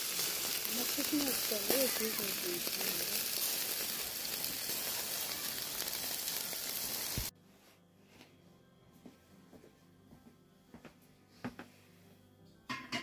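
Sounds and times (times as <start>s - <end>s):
meat sizzling on a grill: 0.0s - 7.3s.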